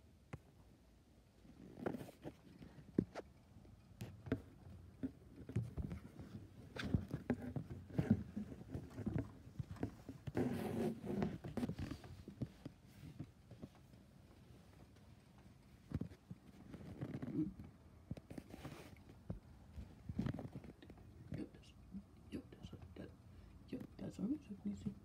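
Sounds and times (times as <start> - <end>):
phone rustling against fabric: 1.4 - 3.4, 4.0 - 21.4.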